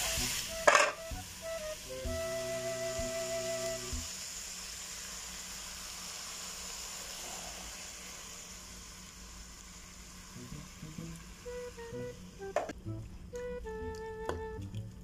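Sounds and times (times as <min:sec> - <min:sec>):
meat and vegetables sizzling: 0:00.0 - 0:13.0.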